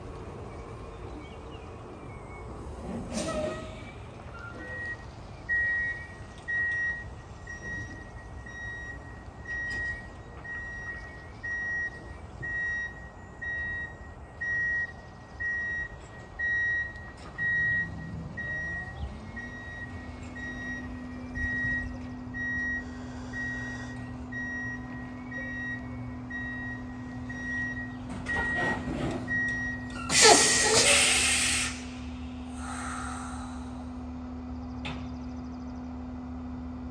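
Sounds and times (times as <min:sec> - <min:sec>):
truck reversing alarm beeping: 0:01.7 - 0:36.9
air brake hiss: 0:30.0 - 0:33.9.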